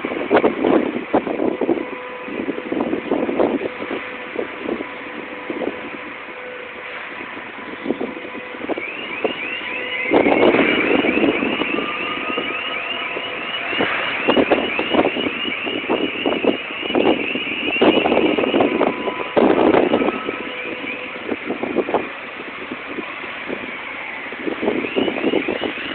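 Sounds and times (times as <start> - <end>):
machinery noise: 0.0 - 25.9
electronic alarm chirping: 8.7 - 22.0, 24.7 - 25.9.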